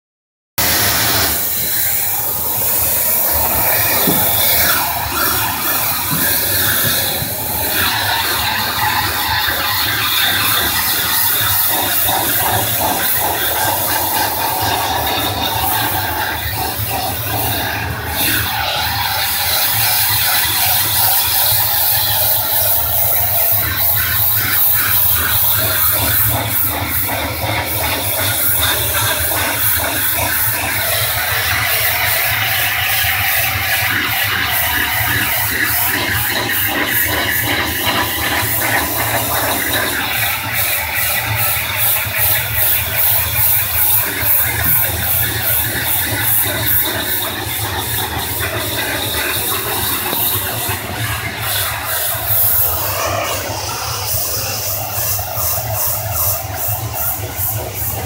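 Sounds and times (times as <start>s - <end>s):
pressure washer spray hissing: 0.6s - 23.6s, 38.0s - 58.0s
machine humming: 0.6s - 58.0s.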